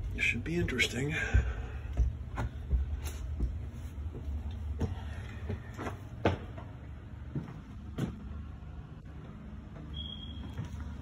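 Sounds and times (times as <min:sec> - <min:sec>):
footsteps on hardwood floor: 0:00.0 - 0:08.4.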